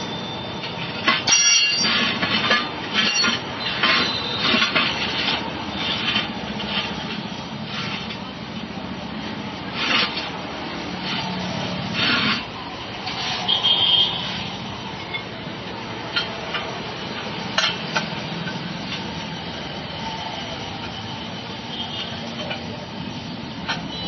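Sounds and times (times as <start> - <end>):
rubber tyre scraping: 0.4 - 8.4, 9.3 - 14.4.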